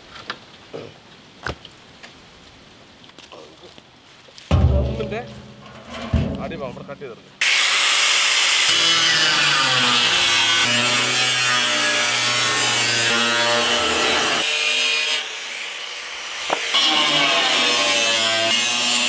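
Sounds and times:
angle grinder cutting metal: 0:07.4 - 0:19.0.

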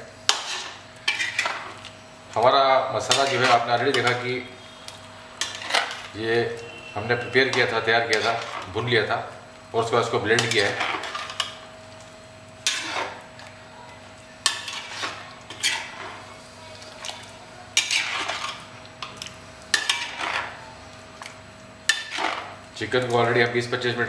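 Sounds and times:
metal ladle scraping a pan: 0:00.3 - 0:01.8, 0:03.0 - 0:04.5, 0:05.4 - 0:06.1, 0:07.1 - 0:08.8, 0:10.4 - 0:11.6, 0:12.6 - 0:13.2, 0:14.4 - 0:17.2, 0:17.8 - 0:18.7, 0:19.7 - 0:20.6, 0:21.9 - 0:22.5.

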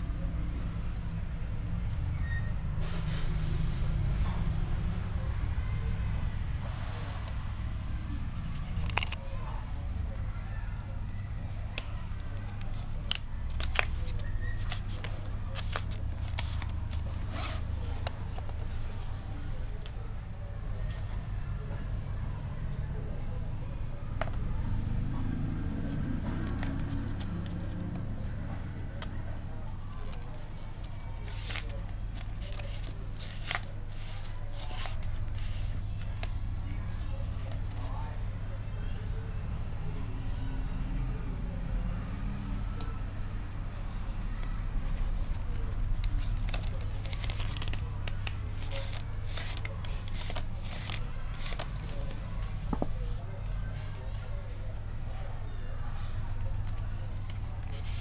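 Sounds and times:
cardboard book clicks and rustles: 0:08.5 - 0:09.4, 0:11.6 - 0:19.1, 0:25.8 - 0:28.3, 0:29.8 - 0:37.9, 0:44.4 - 0:53.0, 0:56.2 - 0:58.0.

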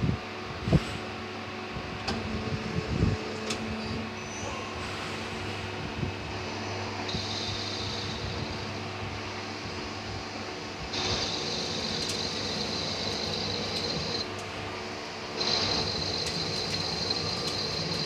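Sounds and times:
lathe machine hum: 0:05.1 - 0:18.0.

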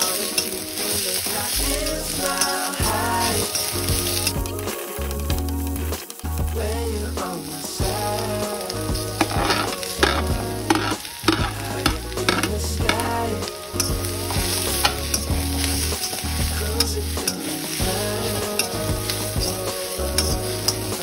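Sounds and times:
vegetables sizzling in a wok: 0:00.0 - 0:21.0
metal spatula scraping a pan: 0:09.2 - 0:13.1.

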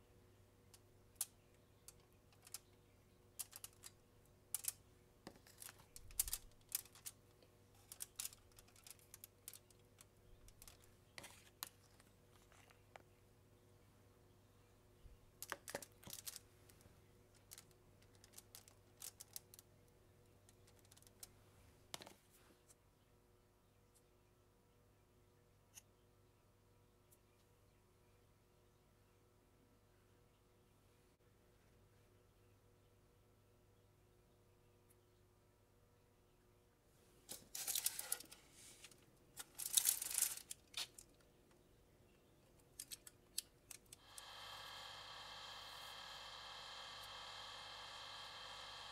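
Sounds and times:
foil crinkling and rustling: 0:37.3 - 0:41.1
toaster oven electric hum: 0:43.8 - 0:48.9.

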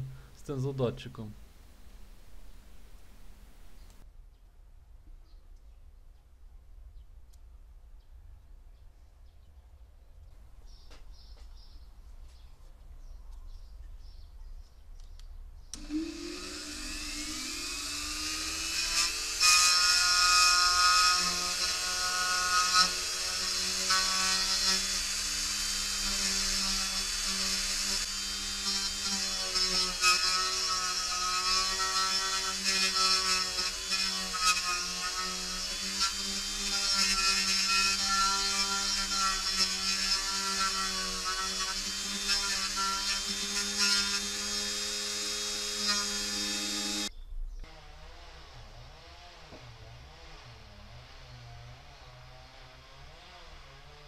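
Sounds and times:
bit grinding epoxy: 0:15.8 - 0:47.1
rotary tool motor whine: 0:15.8 - 0:47.1.

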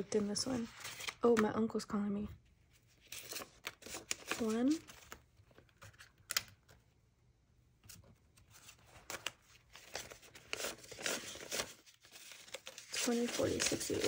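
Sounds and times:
banknotes rustling: 0:02.8 - 0:06.3, 0:08.0 - 0:14.0.

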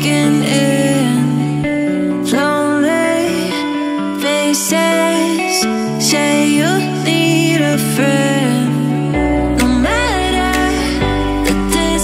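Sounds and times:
song with singing and guitar: 0:00.0 - 0:12.0.

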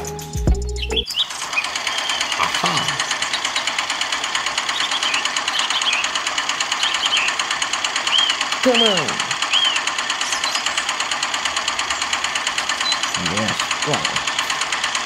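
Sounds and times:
small electric motor buzzing: 0:03.0 - 0:15.0.

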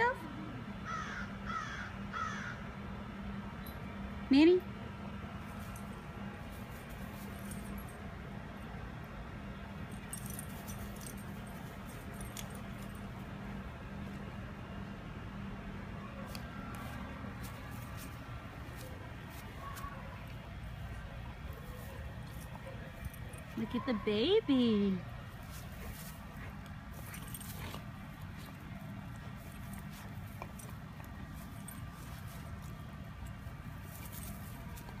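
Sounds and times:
low hum: 0:00.0 - 0:35.0
steady low rumble: 0:02.6 - 0:35.0
faint jingling and rustling: 0:05.4 - 0:08.1, 0:09.8 - 0:13.4, 0:20.7 - 0:24.5, 0:25.3 - 0:35.0.

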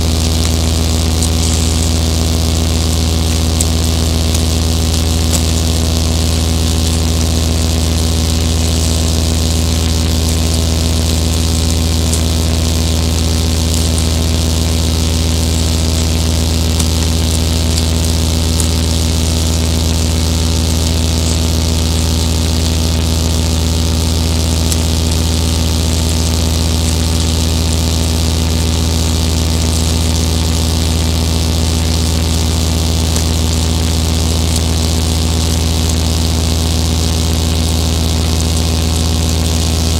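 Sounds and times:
loud low hum: 0:00.0 - 0:39.9.

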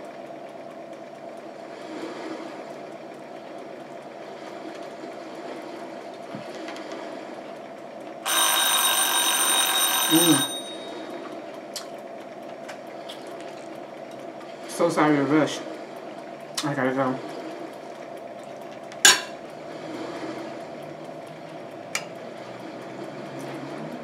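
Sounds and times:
steady low hum: 0:00.0 - 0:24.0
electronic buzzer ringing: 0:08.2 - 0:11.3.

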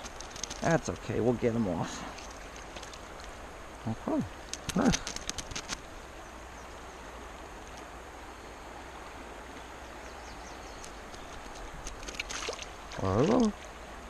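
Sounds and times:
faint clicks: 0:00.0 - 0:01.1, 0:04.4 - 0:05.9, 0:10.7 - 0:13.6.

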